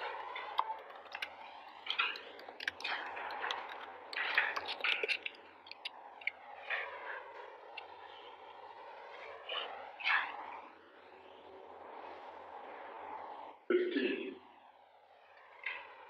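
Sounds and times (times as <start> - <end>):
keyboard and mouse clicking: 0.4 - 6.4.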